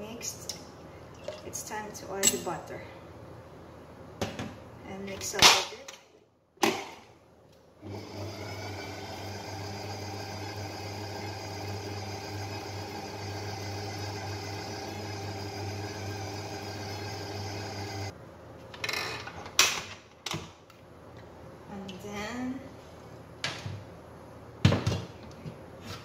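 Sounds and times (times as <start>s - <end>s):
stand mixer motor whisking: 7.8s - 18.1s.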